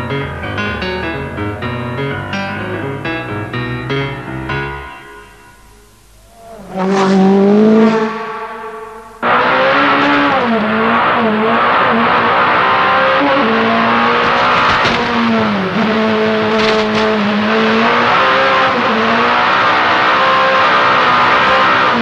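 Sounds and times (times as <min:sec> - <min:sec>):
turbocharged engine at full throttle: 0:06.3 - 0:22.0.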